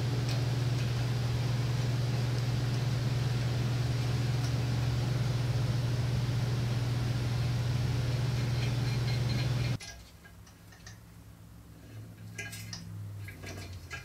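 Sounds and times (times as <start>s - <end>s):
low electric hum: 0.0s - 14.0s
small metallic ticks: 8.6s - 11.0s.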